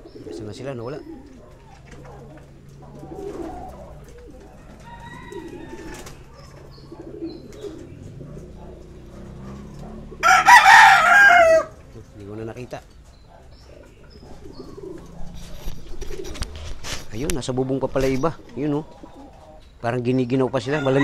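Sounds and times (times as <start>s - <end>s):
pigeons cooing: 0.0s - 21.0s
rooster crowing: 4.6s - 6.2s, 10.2s - 11.8s, 20.6s - 21.0s.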